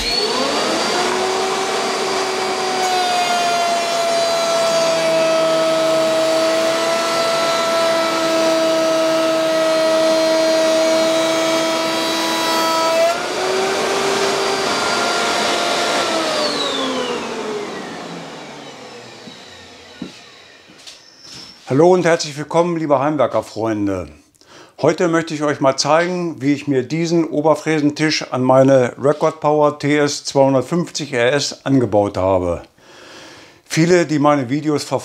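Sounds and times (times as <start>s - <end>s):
dust extractor running: 0.0s - 21.3s
router motor whine: 0.0s - 21.6s.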